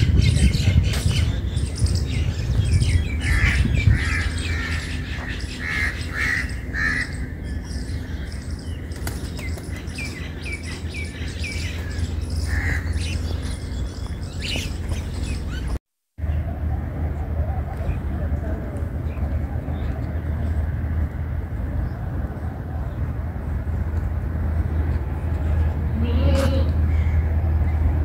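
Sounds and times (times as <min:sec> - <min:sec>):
harsh bird calls: 0:00.0 - 0:16.4
birds chirping: 0:00.0 - 0:28.0.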